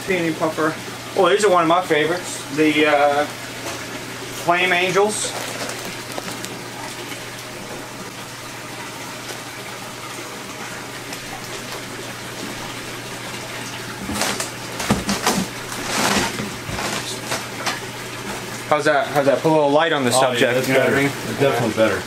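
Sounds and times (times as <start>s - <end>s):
circulating water rushing: 0.0s - 22.0s
plastic rustling and handling: 4.6s - 7.2s, 13.6s - 18.5s.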